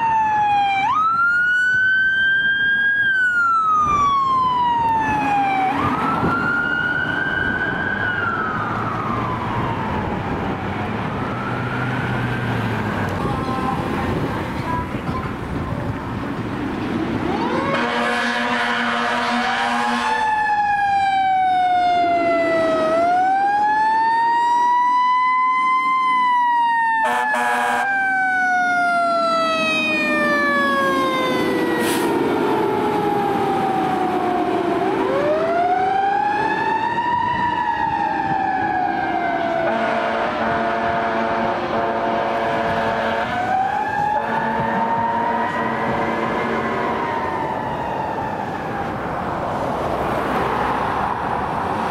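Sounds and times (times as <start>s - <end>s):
fire engine siren wailing: 0.0s - 51.9s
air horn blasts: 17.5s - 20.2s, 27.0s - 27.9s, 39.7s - 43.5s, 44.1s - 46.8s.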